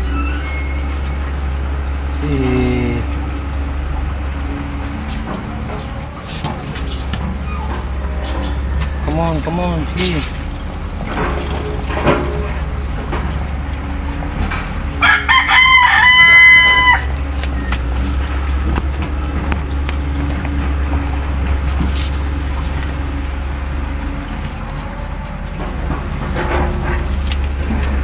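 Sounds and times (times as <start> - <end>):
steady low hum: 0.0 - 28.0
rooster crowing: 14.9 - 21.6.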